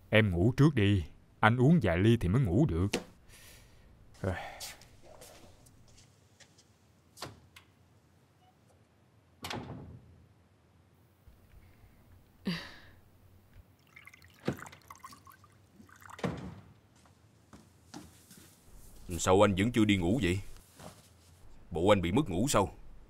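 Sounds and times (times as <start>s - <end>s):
liquid poured into a glass: 13.8s - 16.3s.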